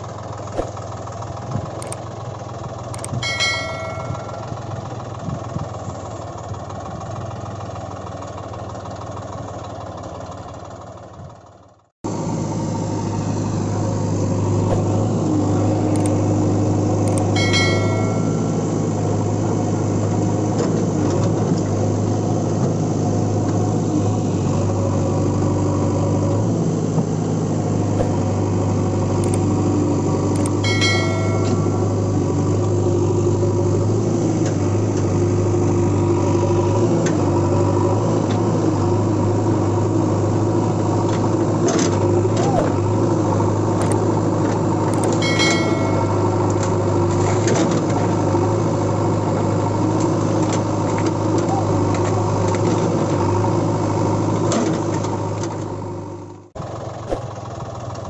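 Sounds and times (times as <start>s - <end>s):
heavy machinery engine idling: 0.0s - 21.0s, 21.7s - 37.8s, 39.0s - 47.2s
brief ringing clicks: 17.1s - 18.6s, 30.4s - 32.0s, 45.0s - 46.6s.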